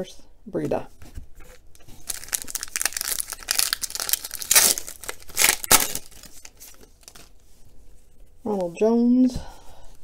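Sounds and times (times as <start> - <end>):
wrapper crinkling and tearing: 1.8 - 7.4.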